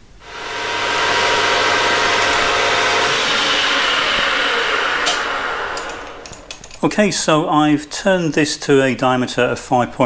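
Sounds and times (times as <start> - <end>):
high-pitched whine: 0.0 - 7.7
metal lathe motor running: 0.1 - 7.0.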